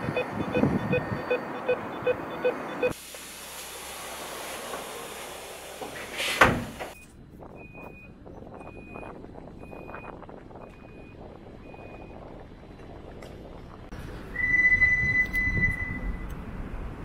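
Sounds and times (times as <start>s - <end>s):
door warning beeps: 0.0s - 3.0s
sliding door slamming shut: 3.9s - 7.0s.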